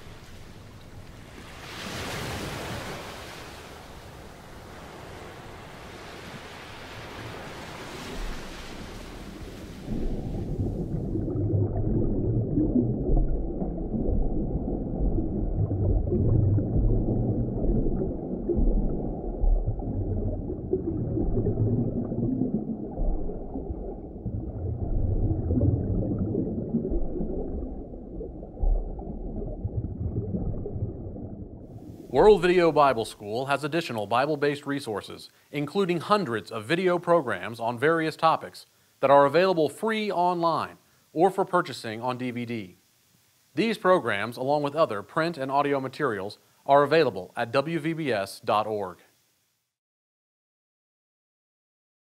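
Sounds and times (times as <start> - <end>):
rushing surf: 1.3 - 10.7
muffled underwater rumble: 8.2 - 32.7.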